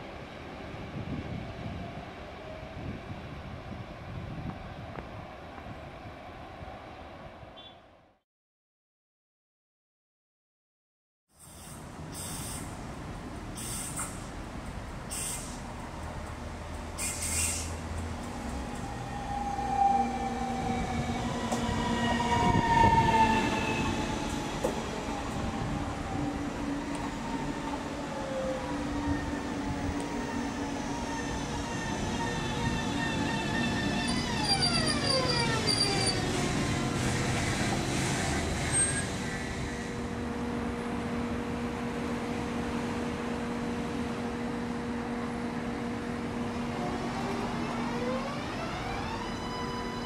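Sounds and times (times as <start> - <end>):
electric train motors whining: 11.6 - 40.3, 45.3 - 50.0
train wheels rumbling: 11.6 - 50.0.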